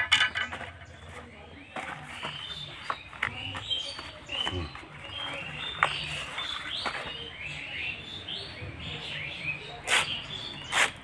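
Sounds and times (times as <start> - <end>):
small birds chirping: 0.0 - 11.0
blade cutting leaves on concrete: 9.7 - 11.0.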